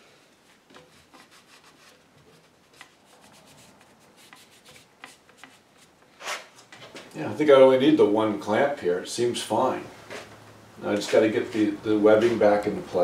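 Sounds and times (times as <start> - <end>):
rag rubbing on wood: 0.8 - 6.5.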